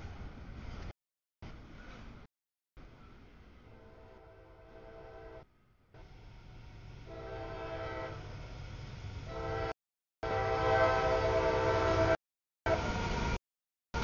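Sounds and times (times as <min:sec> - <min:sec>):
low rumble of train: 0:00.0 - 0:13.4
locomotive air horn blasts: 0:03.8 - 0:05.4, 0:07.1 - 0:08.3, 0:09.3 - 0:12.9.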